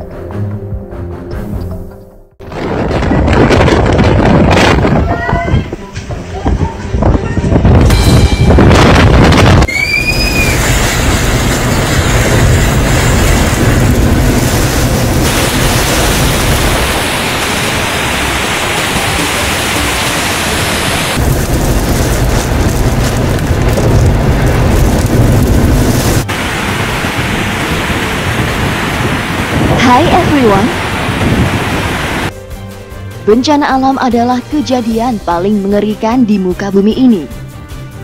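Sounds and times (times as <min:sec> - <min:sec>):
wind gusting on microphone: 0:02.4 - 0:32.3
heavy rain: 0:08.8 - 0:32.3
floodwater torrent rushing: 0:09.7 - 0:32.3.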